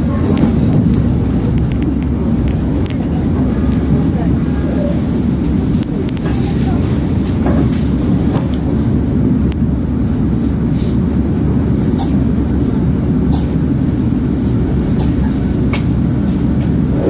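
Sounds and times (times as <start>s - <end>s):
wheels clicking over rail joints: 0.0s - 9.8s
train rumble inside carriage: 0.0s - 17.0s.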